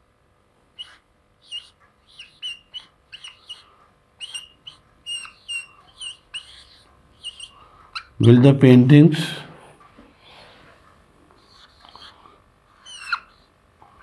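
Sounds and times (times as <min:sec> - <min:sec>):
marker squeaking on a whiteboard: 0:00.8 - 0:08.3, 0:11.4 - 0:12.2, 0:12.8 - 0:13.5.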